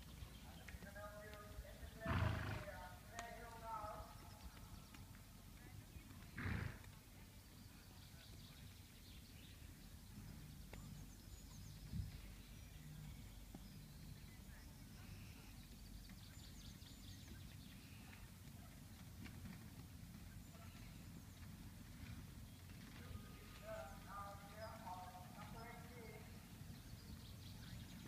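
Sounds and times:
faint bird chirps: 7.5s - 18.3s.

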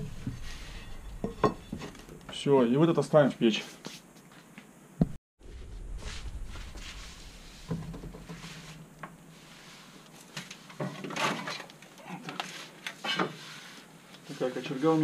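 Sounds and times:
pot scraping on brick hearth: 0.0s - 2.2s, 6.9s - 11.7s.

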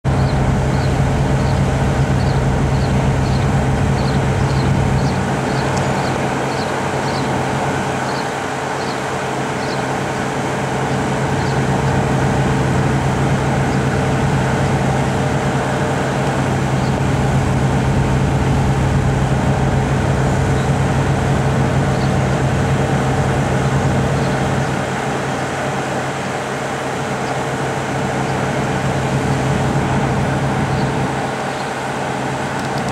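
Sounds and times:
diesel locomotives idling: 0.0s - 32.9s.

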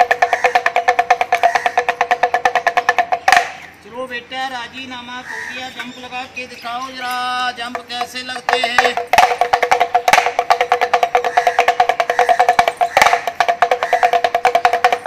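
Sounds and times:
man calling in a sing-song: 3.7s - 13.1s
pellet drum rattling: 7.6s - 15.0s.

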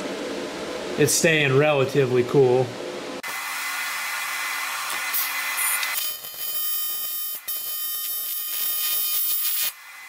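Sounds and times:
welding arc hissing buzz: 3.2s - 10.0s.

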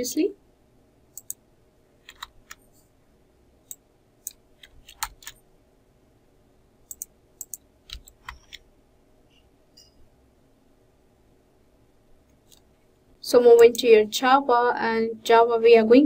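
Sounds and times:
mouse clicks: 1.1s - 1.4s, 6.8s - 8.6s
keyboard keystrokes: 2.1s - 2.6s, 3.7s - 5.4s, 6.9s - 8.6s.

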